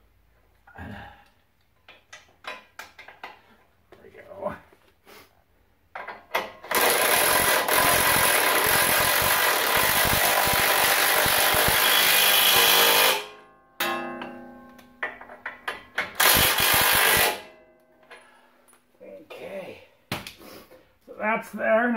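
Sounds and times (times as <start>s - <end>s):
impact wrench hammering: 6.0s - 17.6s.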